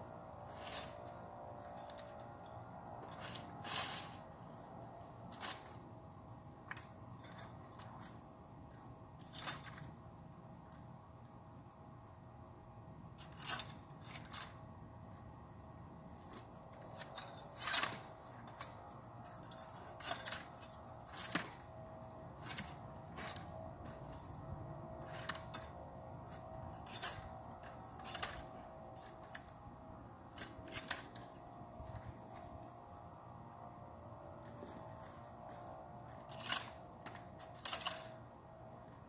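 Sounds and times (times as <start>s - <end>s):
pruning shears snipping twigs: 25.0s - 29.6s, 34.4s - 39.0s.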